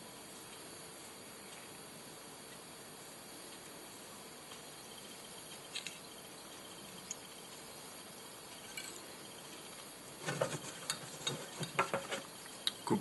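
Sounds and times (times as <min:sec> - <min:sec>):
steady low hiss: 0:00.0 - 0:13.0.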